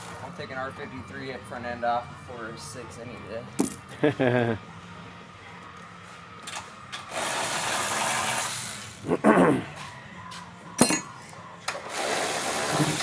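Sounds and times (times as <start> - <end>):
power ratchet running: 7.1 - 9.1.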